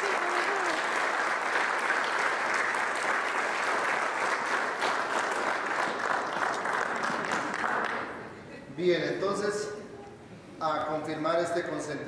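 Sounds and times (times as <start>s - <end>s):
crowd applauding: 0.0s - 8.3s.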